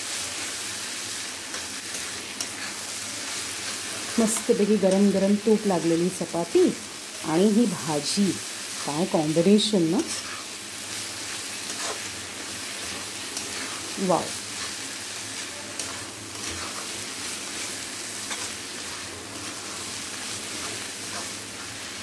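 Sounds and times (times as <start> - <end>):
vegetables sizzling in pan: 0.0 - 22.0.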